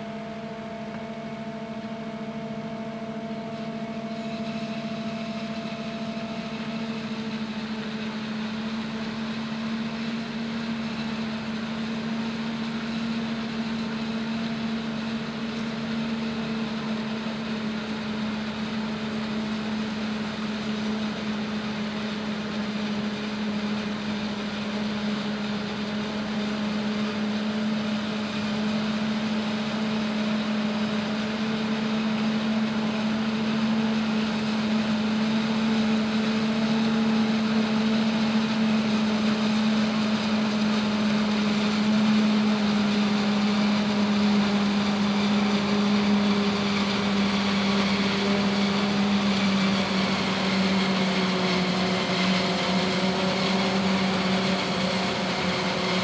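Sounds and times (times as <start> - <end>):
forage harvester droning: 0.0 - 56.0.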